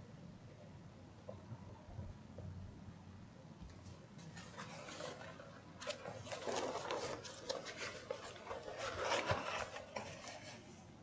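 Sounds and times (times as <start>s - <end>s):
cardboard box rubbing and scraping: 4.4s - 10.7s.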